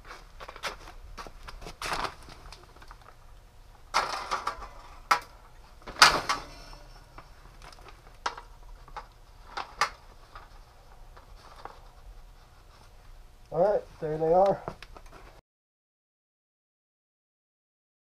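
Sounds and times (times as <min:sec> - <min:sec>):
rustling scrapes: 0:09.3 - 0:13.0.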